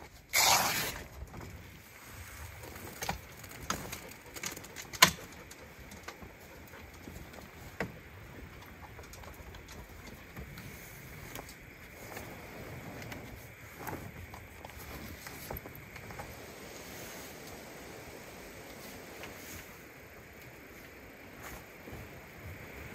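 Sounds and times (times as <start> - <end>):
tent frame clicks and knocks: 2.9 - 6.3.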